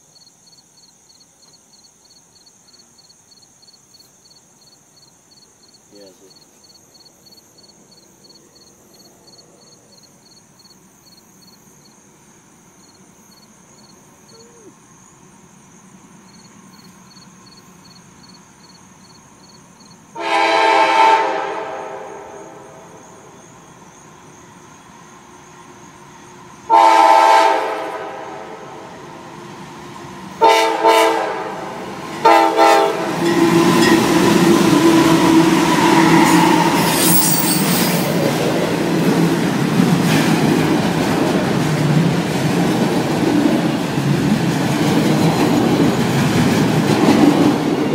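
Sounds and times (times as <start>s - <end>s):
insect chirping: 0.0s - 20.4s, 21.5s - 27.1s, 31.2s - 47.9s
train passing rumble and roar: 4.8s - 47.9s
locomotive air horn blasts: 20.2s - 22.6s, 26.7s - 28.7s, 30.4s - 37.1s.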